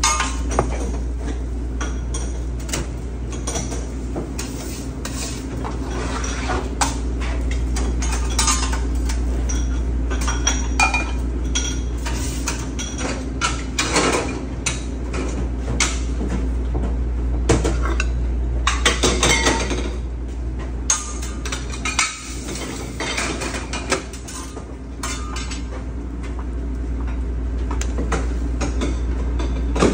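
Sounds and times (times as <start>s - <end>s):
steady low hum: 0.0s - 29.9s
metal spatula and pans clattering: 20.9s - 25.7s.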